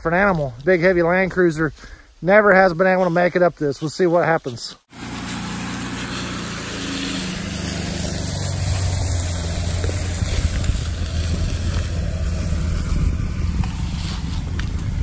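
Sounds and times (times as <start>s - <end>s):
truck engine rumbling: 4.9s - 15.0s.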